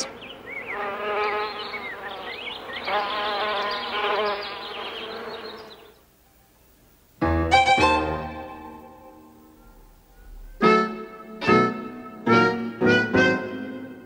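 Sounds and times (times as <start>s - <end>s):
insect buzzing: 0.0s - 6.0s.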